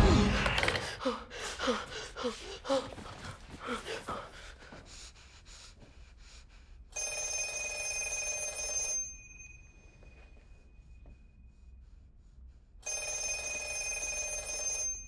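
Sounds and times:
telephone bell ringing: 7.0s - 10.0s, 12.8s - 15.0s.

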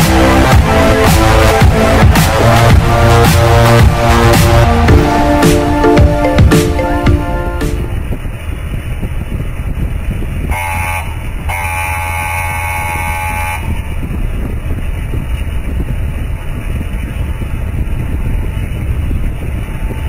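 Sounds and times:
motorcycle riding at speed: 0.0s - 5.9s, 7.8s - 20.0s
vehicle horn: 0.5s - 5.8s, 10.5s - 13.8s
wind on microphone: 7.8s - 20.0s.

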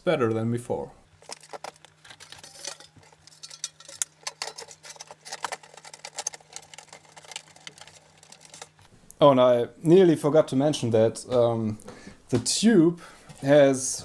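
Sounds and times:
faint steady hum: 0.0s - 14.0s
metal case clicks and scrapes: 1.2s - 8.9s.

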